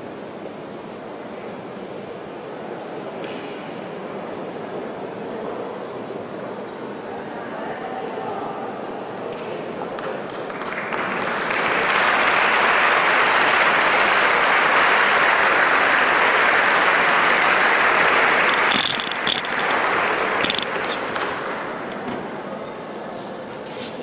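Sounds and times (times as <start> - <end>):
audience applauding: 10.5 - 21.7.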